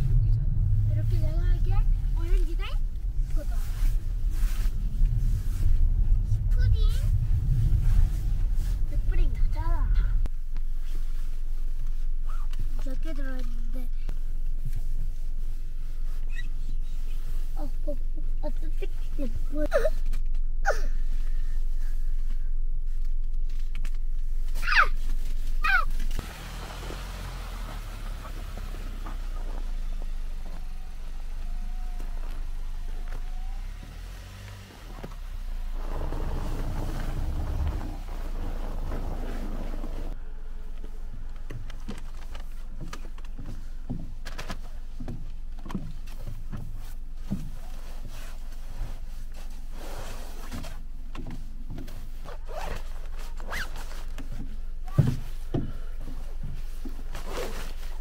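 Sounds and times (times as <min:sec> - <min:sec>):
car engine running: 0:00.0 - 0:16.2, 0:25.9 - 0:47.6
zipper on nylon bag: 0:53.4 - 0:53.6.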